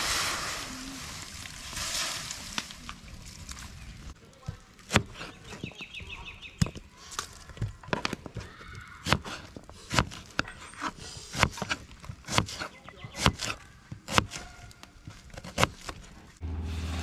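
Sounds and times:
knife chopping onion on board: 0:11.4 - 0:14.4.

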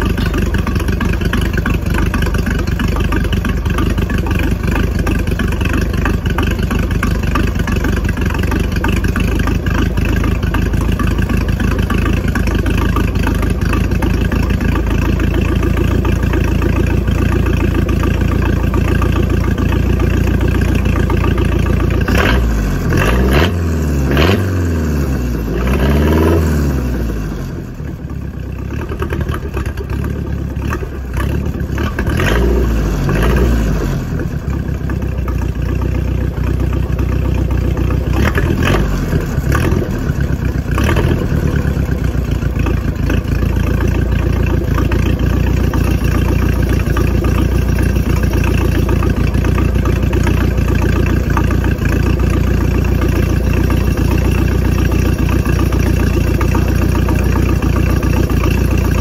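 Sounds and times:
boat engine revving: 0:00.0 - 0:27.8.

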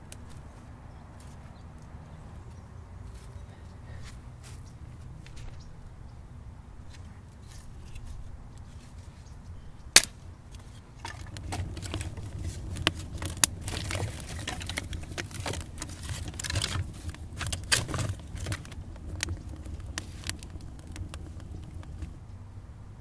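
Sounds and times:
wood fire crackling: 0:09.8 - 0:22.4
burning sticks clattering: 0:09.9 - 0:22.2.

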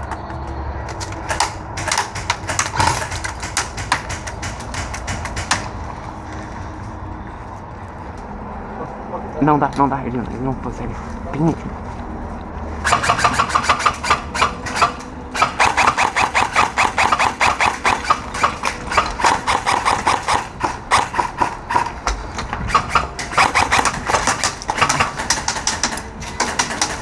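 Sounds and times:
airsoft guns firing bursts: 0:12.8 - 0:21.9, 0:22.7 - 0:27.0.

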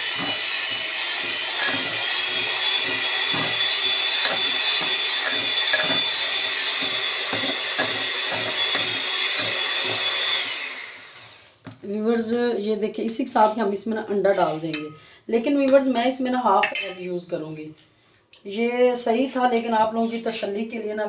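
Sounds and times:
electric mixer running: 0:00.0 - 0:11.5.

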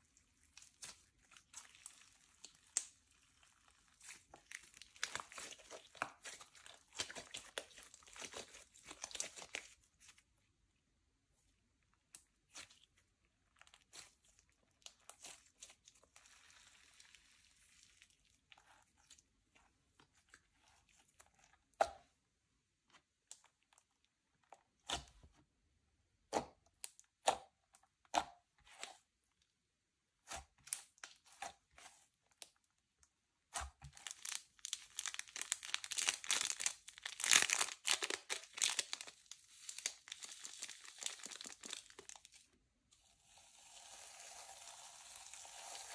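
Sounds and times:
slime clicking and crackling: 0:00.4 - 0:09.8, 0:33.6 - 0:42.4.

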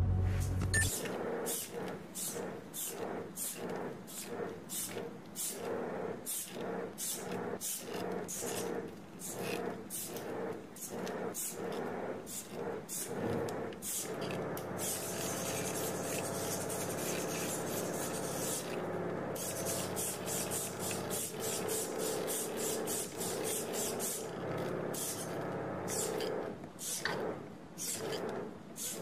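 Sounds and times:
low hum of drive system: 0:00.0 - 0:01.1
pneumatic hissing and rasping: 0:01.5 - 0:18.8, 0:19.4 - 0:27.2, 0:27.8 - 0:29.0.

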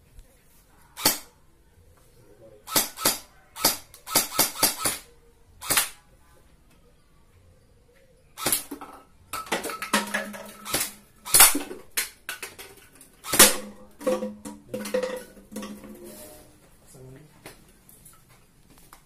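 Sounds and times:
gel blaster firing: 0:01.0 - 0:01.3, 0:02.7 - 0:06.0, 0:08.4 - 0:08.7, 0:10.6 - 0:11.7, 0:13.2 - 0:13.8.

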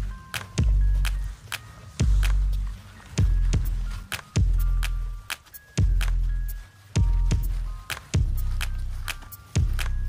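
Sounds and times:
deep bass notes: 0:02.0 - 0:05.2, 0:07.0 - 0:09.0.

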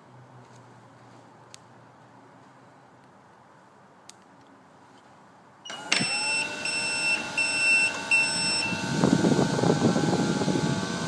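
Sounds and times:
machine beeping: 0:05.7 - 0:11.0
motor whine: 0:05.7 - 0:11.0
vacuum air rushing: 0:08.0 - 0:11.0.

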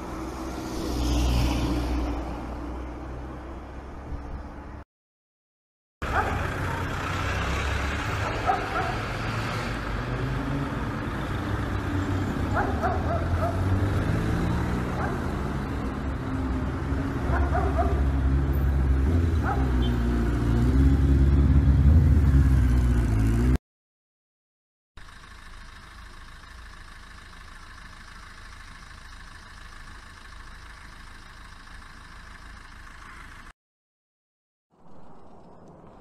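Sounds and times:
dog yapping: 0:08.2 - 0:09.0, 0:12.6 - 0:13.7, 0:17.3 - 0:18.0.

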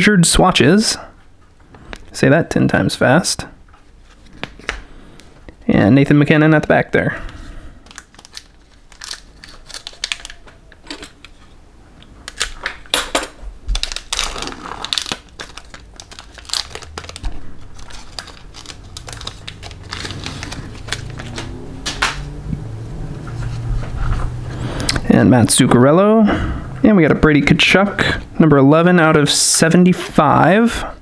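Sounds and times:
foil card pack crinkling: 0:07.3 - 0:11.5, 0:12.2 - 0:22.2.

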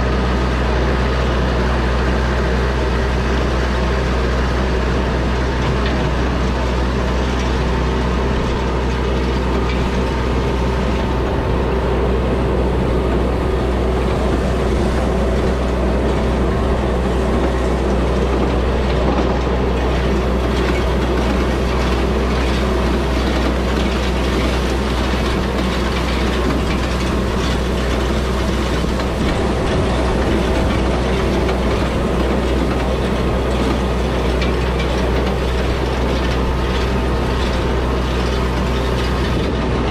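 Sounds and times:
diesel tractor engine running: 0:00.0 - 0:39.9
hay rake gears clattering: 0:02.7 - 0:39.9.

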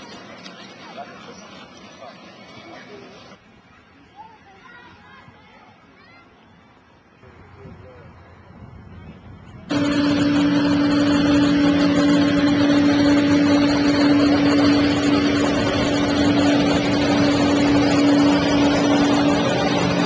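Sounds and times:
engine running steadily: 0:09.5 - 0:20.0.

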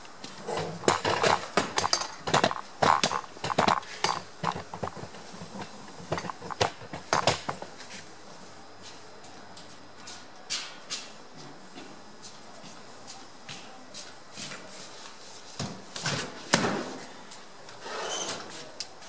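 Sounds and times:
sharp clicks and clattering knocks: 0:00.6 - 0:07.7.

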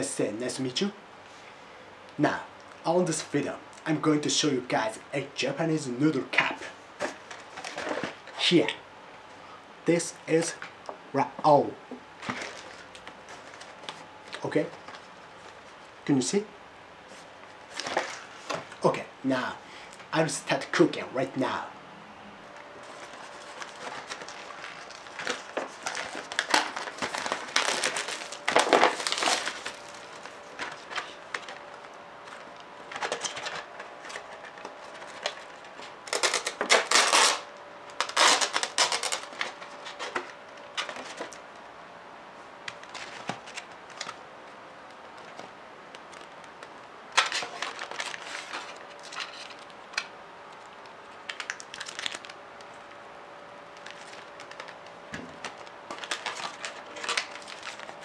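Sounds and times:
plastic packaging crinkling and tearing: 0:07.0 - 0:08.3, 0:12.2 - 0:15.1, 0:22.8 - 0:41.4, 0:42.7 - 0:44.2, 0:45.2 - 0:53.0, 0:53.7 - 0:58.0.

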